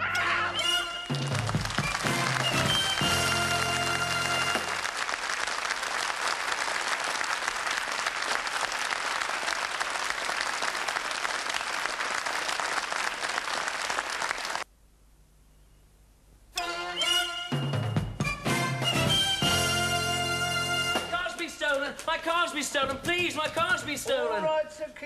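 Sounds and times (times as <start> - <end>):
audience applauding: 1.0 - 14.7.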